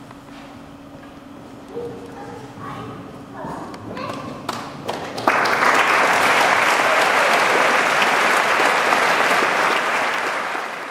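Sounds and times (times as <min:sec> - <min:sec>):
audience clapping: 0:04.4 - 0:10.9.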